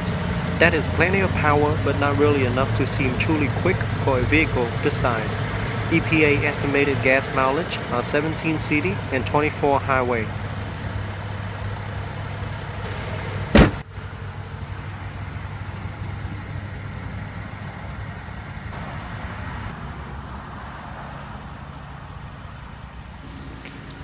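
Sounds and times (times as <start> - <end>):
car engine idling: 0.0 - 24.0
loud thump: 13.5 - 13.8.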